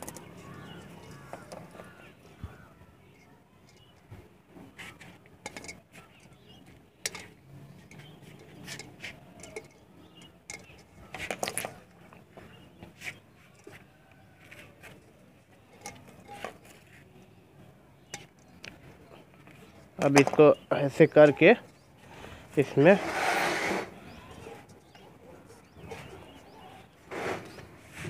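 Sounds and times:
pliers twisting wire on clay pot: 0:00.0 - 0:04.1, 0:04.7 - 0:14.1, 0:15.7 - 0:17.0.

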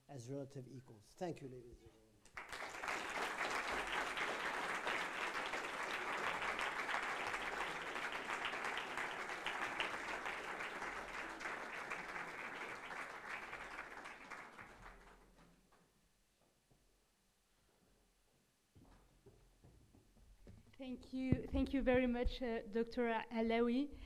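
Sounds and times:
audience applauding: 0:02.3 - 0:15.4.

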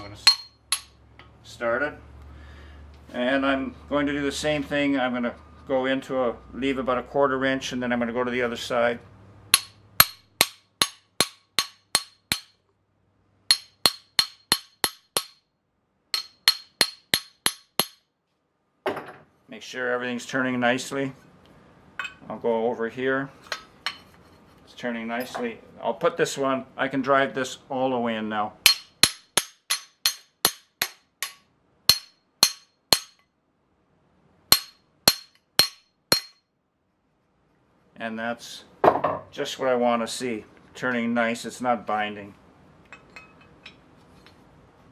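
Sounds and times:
hammer tapping metal: 0:00.0 - 0:01.3, 0:09.5 - 0:12.6, 0:13.5 - 0:15.4, 0:16.1 - 0:18.1, 0:28.7 - 0:33.3, 0:34.5 - 0:36.4.

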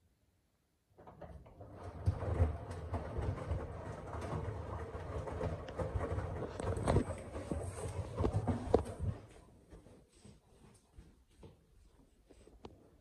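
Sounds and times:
washing machine drum rumbling: 0:01.0 - 0:09.3.

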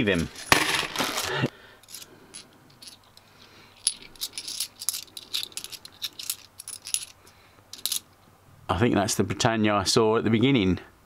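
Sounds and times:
coins clinking: 0:00.2 - 0:08.1.

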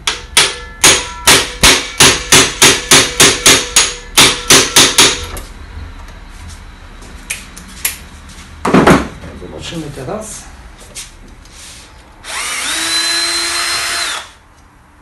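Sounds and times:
hammer striking metal screwdriver: 0:00.0 - 0:05.4.

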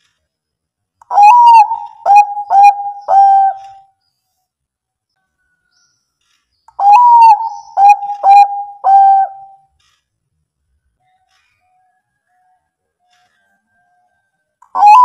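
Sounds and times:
dove cooing: 0:01.1 - 0:03.8, 0:06.8 - 0:09.6, 0:14.7 - 0:15.0.

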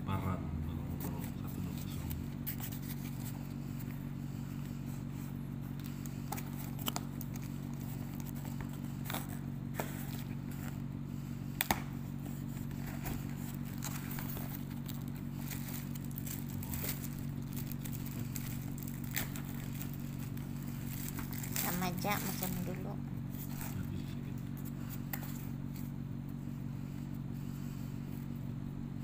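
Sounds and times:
steady low hum: 0:00.0 - 0:29.0
cardboard flaps crackling and scraping: 0:12.1 - 0:24.0.

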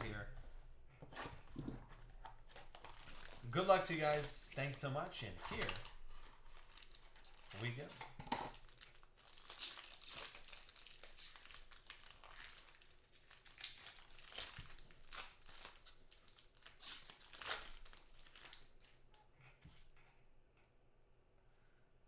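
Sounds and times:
foil wrapper crinkling and tearing: 0:02.4 - 0:04.4, 0:05.6 - 0:07.9, 0:08.5 - 0:19.0.

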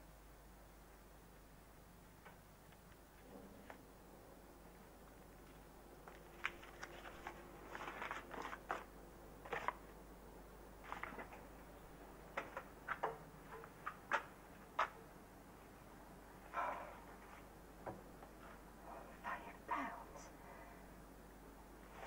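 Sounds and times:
paper crinkling and rustling: 0:05.4 - 0:10.0, 0:10.8 - 0:11.4.

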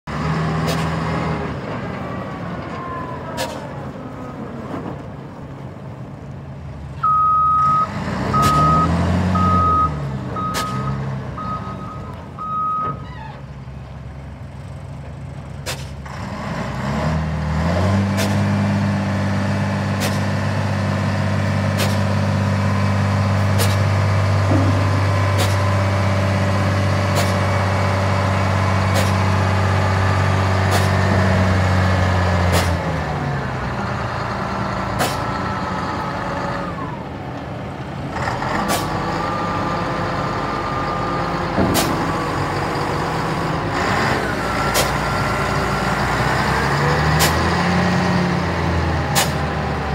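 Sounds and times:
diesel engine revving: 0:00.0 - 0:49.9
reversing alarm beeps: 0:07.0 - 0:13.0.

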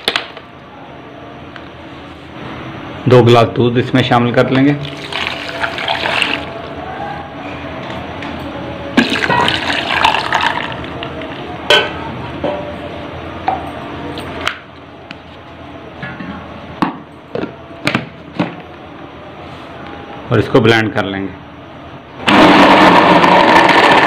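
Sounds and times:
milk pouring over ice: 0:04.9 - 0:06.5.

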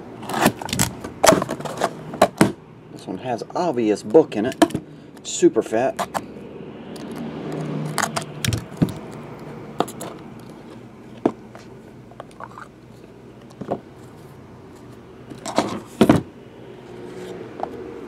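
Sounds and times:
clicks scrapes and crinkles: 0:00.2 - 0:02.0, 0:06.9 - 0:16.0.

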